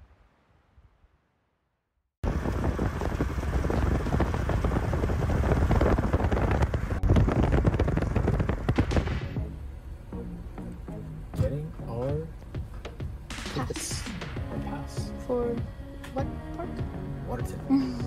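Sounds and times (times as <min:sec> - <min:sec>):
wind buffeting microphone: 0:02.2 - 0:09.5.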